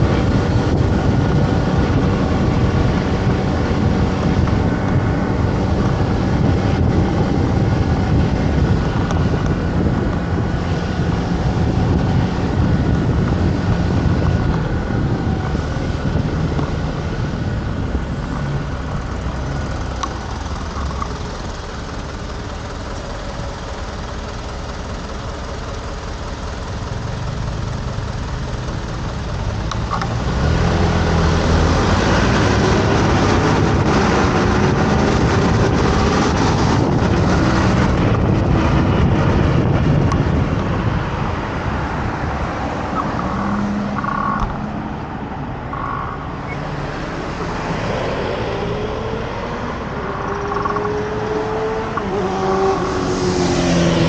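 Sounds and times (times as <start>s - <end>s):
street traffic: 0.0s - 54.0s
motor scooter engine running: 34.4s - 44.6s, 49.8s - 54.0s.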